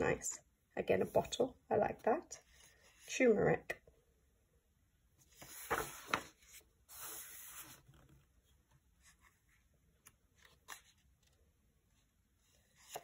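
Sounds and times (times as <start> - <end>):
paper page turning: 5.4 - 8.3, 10.0 - 11.4.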